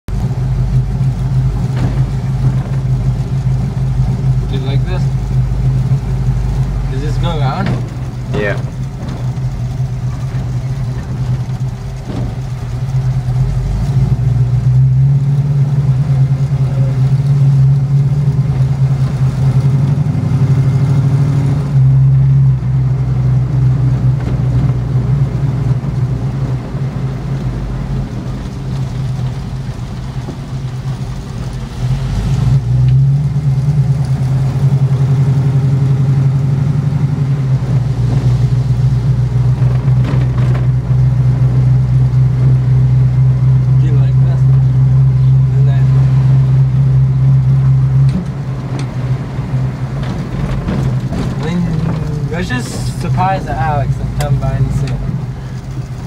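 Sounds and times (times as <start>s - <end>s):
road noise: 0.0s - 56.0s
car engine from inside cabin: 0.1s - 56.0s.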